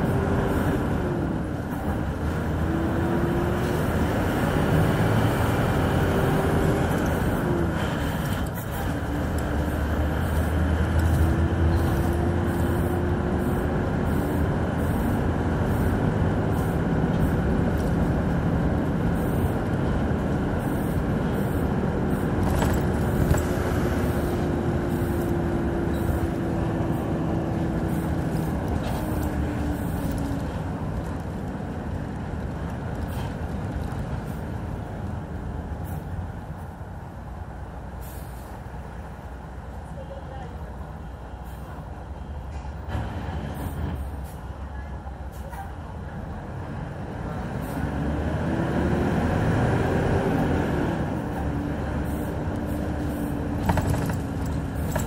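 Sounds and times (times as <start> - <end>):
bus engine running: 0.0 - 55.0.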